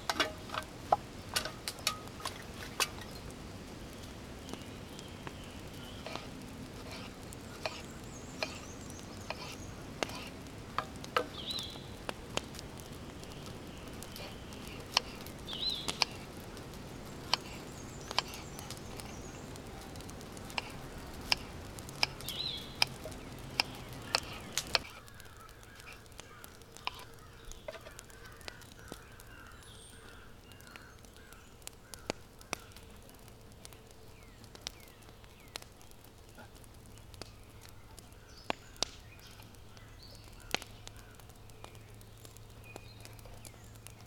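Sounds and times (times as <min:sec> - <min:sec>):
faint clicks: 0:01.3 - 0:44.0
bird calling: 0:04.5 - 0:10.5, 0:11.1 - 0:32.9.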